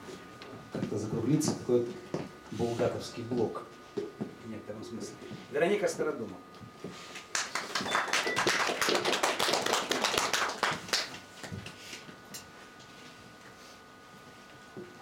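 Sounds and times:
audience applauding: 7.3 - 11.5.

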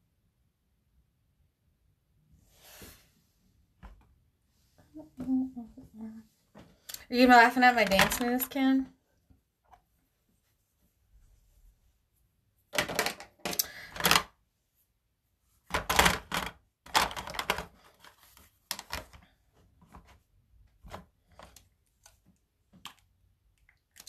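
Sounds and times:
makeup items clattering: 7.6 - 8.8, 12.7 - 14.3, 15.7 - 19.2.

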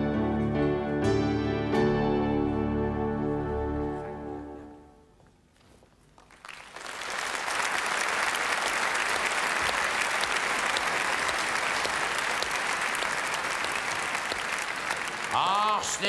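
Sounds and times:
large audience applauding: 6.2 - 16.0.

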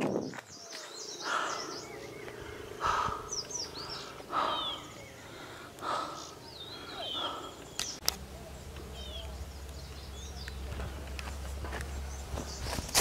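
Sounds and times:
small birds chirping: 0.0 - 13.0
bird harsh call: 0.8 - 8.0.

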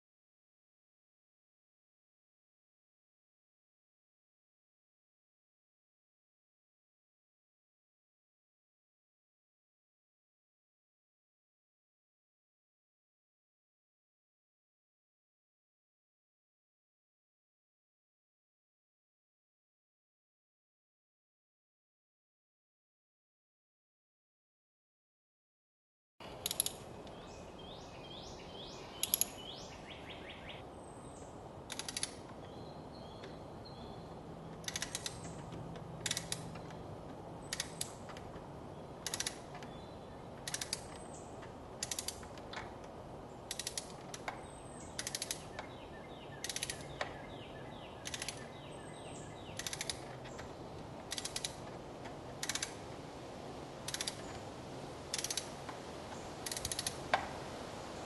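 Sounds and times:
ratchet wrench clicking: 26.4 - 26.8, 29.0 - 29.4, 34.6 - 35.3, 36.0 - 36.5, 37.5 - 38.0, 39.0 - 39.4, 40.4 - 40.9, 41.8 - 42.2, 43.5 - 44.2, 45.0 - 45.4, 46.4 - 46.8, 49.6 - 50.1, 51.1 - 51.6, 52.4 - 52.8, 53.9 - 54.2, 55.1 - 55.5, 56.4 - 57.0.

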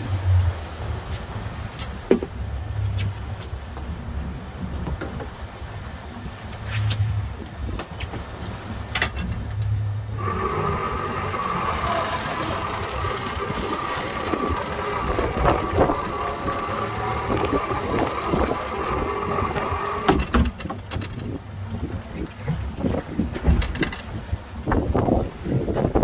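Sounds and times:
low engine rumble: 0.0 - 25.0
motor whine: 10.1 - 20.3.

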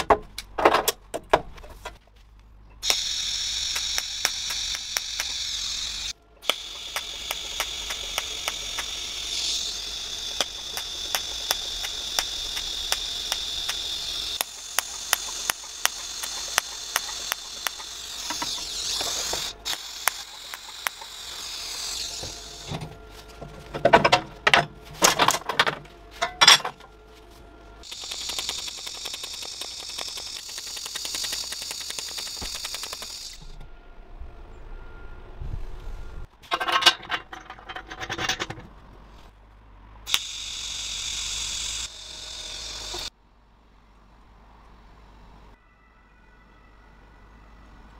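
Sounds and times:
welding arc hissing: 2.8 - 22.8, 27.8 - 33.6, 40.1 - 43.1.

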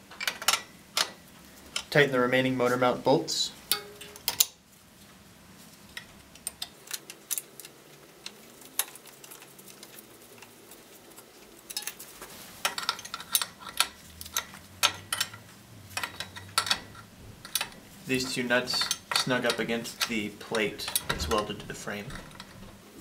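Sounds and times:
wrench clicking on metal bolts: 3.7 - 4.6, 12.6 - 22.6.

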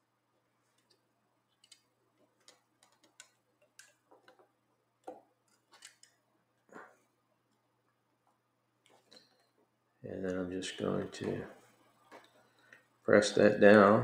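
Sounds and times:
small clicks and taps: 0.7 - 6.2.

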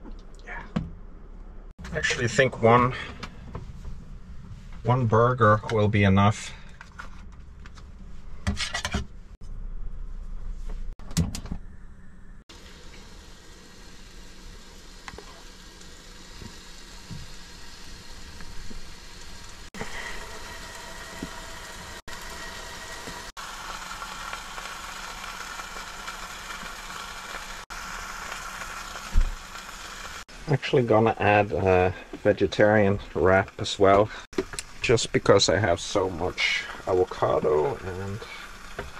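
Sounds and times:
burger patty sizzling in a pan: 12.5 - 30.5, 34.2 - 38.9.

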